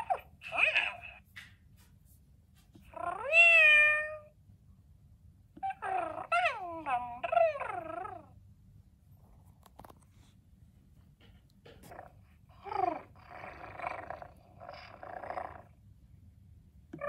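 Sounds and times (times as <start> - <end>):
electronic toy kitten meowing: 2.9 - 4.3, 5.6 - 8.3.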